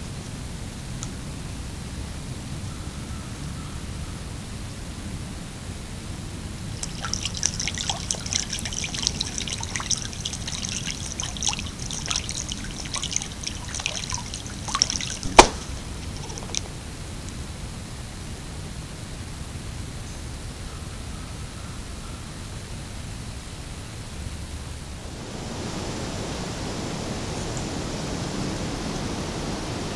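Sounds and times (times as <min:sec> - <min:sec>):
steady hiss: 0:06.5 - 0:20.6
duck splashing in water: 0:06.8 - 0:16.7
sharp smack on water: 0:06.8 - 0:16.7.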